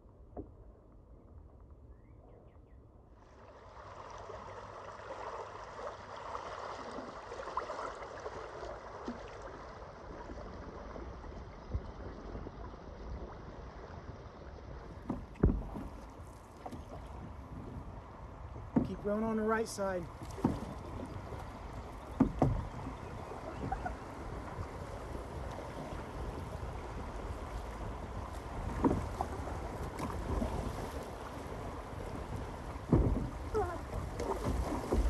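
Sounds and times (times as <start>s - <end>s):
river water rushing and splashing: 3.3s - 11.4s, 18.9s - 35.0s.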